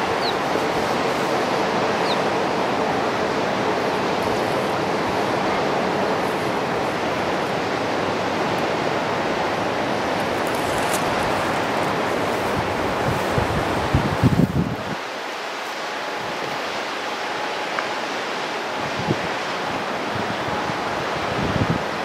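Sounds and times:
fast-flowing river rushing: 0:00.0 - 0:22.0.

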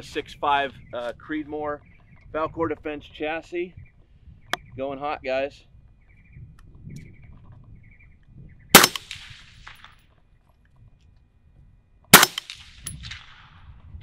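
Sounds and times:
suppressed rifle shots: 0:08.7 - 0:10.0, 0:12.1 - 0:13.6.

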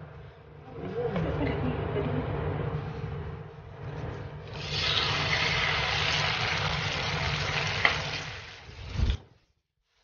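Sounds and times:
eggplant sizzling in hot oil: 0:04.5 - 0:09.0.

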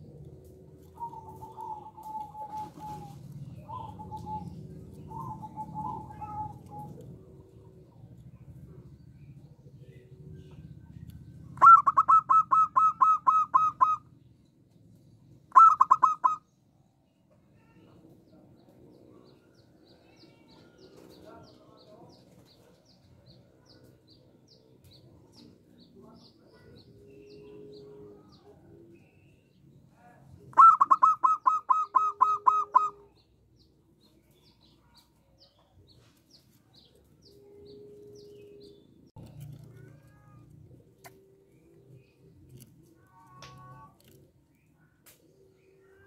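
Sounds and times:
dove cooing: 0:00.0 - 0:08.9, 0:11.4 - 0:14.1, 0:15.5 - 0:16.4, 0:26.6 - 0:29.2, 0:30.4 - 0:33.2, 0:36.9 - 0:42.6.

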